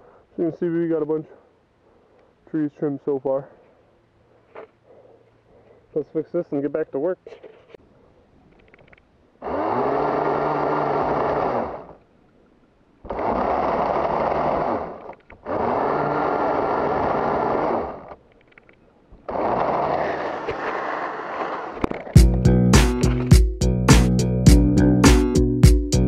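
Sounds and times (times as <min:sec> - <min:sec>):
motorised pole saw cutting: 0:09.4 - 0:12.0, 0:13.0 - 0:18.2, 0:19.2 - 0:21.9.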